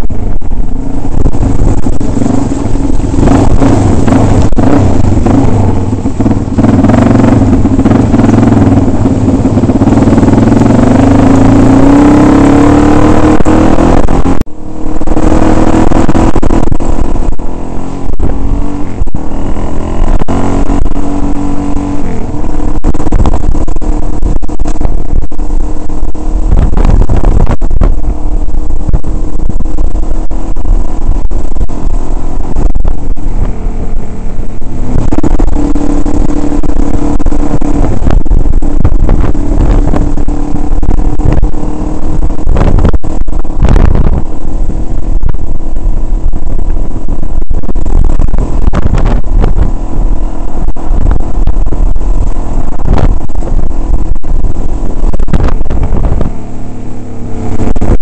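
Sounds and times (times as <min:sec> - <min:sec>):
dirt bike engine revving: 0:00.2 - 0:45.6.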